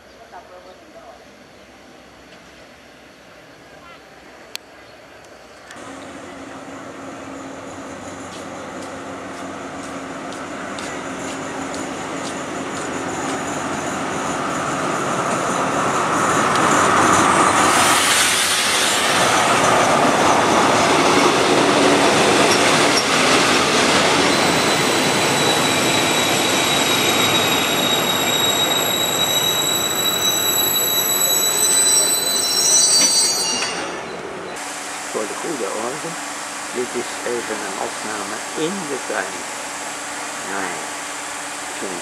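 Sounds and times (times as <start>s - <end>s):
diesel train rolling in: 0.0s - 42.0s
train brakes squealing: 22.4s - 39.4s.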